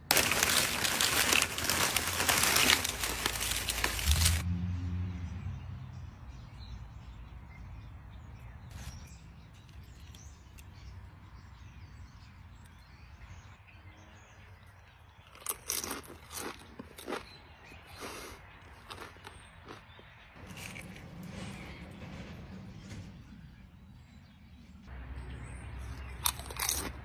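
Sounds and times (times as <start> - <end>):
chip being bitten and chewed: 15.2 - 20.9, 26.0 - 27.0.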